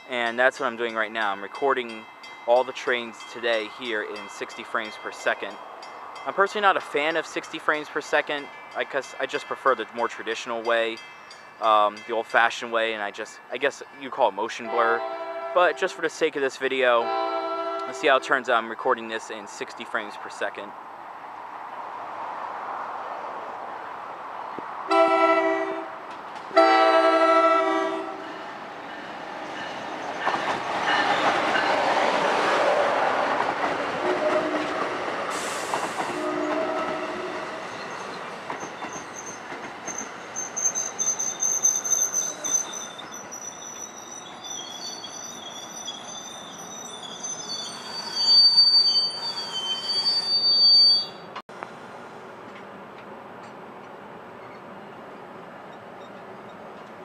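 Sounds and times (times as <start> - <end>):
train rumbling past: 0.0 - 14.0, 14.6 - 57.0
train horn blasts: 14.6 - 16.1, 17.0 - 18.4, 24.9 - 28.4, 34.0 - 34.8, 36.1 - 37.5
train wheels and brakes squealing: 34.1 - 51.4.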